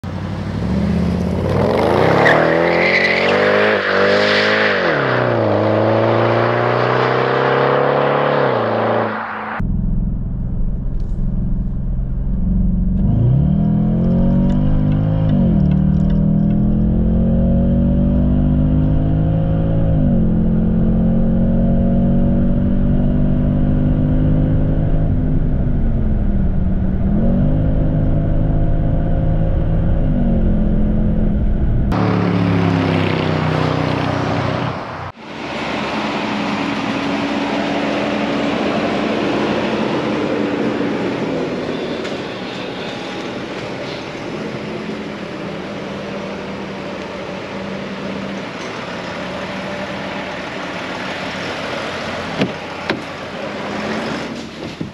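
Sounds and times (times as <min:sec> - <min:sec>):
wind and road noise: 0:00.0 - 0:54.9
car engine revving hard: 0:00.5 - 0:09.6, 0:12.9 - 0:25.2.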